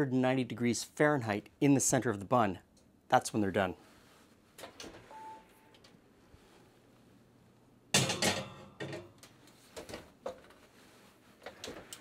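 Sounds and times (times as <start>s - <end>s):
metallic clatter of baking pan: 8.0s - 9.1s.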